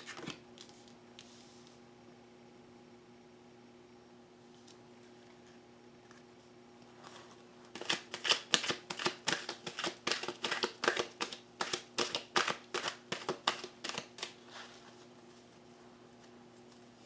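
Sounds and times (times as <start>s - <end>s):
cards being shuffled: 7.7s - 14.9s.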